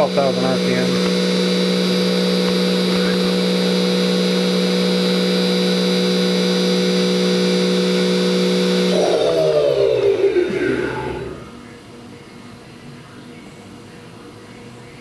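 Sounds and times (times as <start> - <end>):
machine spindle whine: 0.0 - 11.8.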